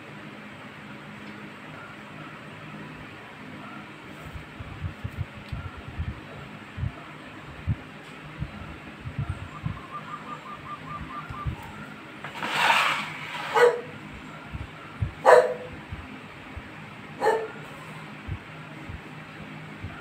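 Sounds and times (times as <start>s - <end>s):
dog barking: 13.5s - 13.9s, 15.2s - 15.7s, 17.2s - 17.6s.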